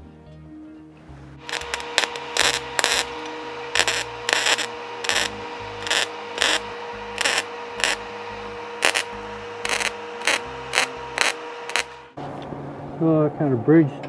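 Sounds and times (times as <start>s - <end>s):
welder hum: 1.4s - 12.2s
welding arc crackling: 1.4s - 12.2s.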